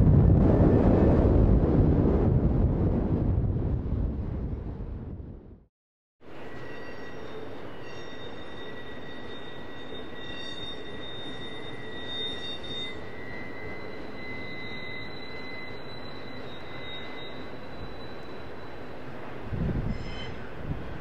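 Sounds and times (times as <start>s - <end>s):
freight train rumbling on rails: 6.3s - 21.0s.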